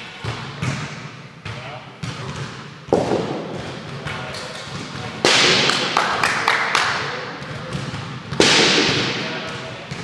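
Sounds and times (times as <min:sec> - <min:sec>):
plastic ball smacking with echo: 0:02.9 - 0:10.0.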